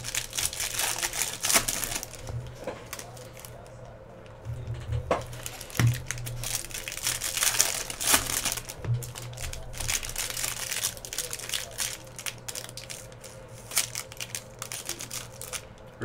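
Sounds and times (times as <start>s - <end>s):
foil wrapper crinkling and tearing: 0.0s - 16.0s.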